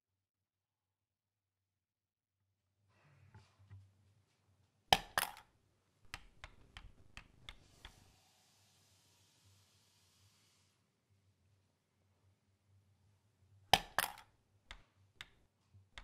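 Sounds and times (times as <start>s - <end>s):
faint hiss: 7.6s - 11.2s.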